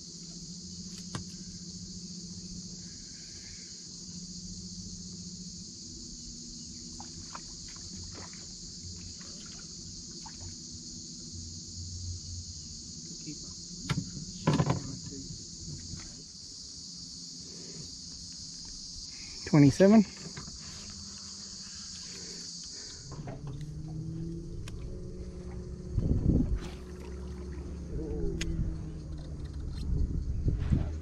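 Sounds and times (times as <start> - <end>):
low hum: 0.0 - 19.4, 20.6 - 31.0
high-pitched insect chorus: 0.0 - 31.0.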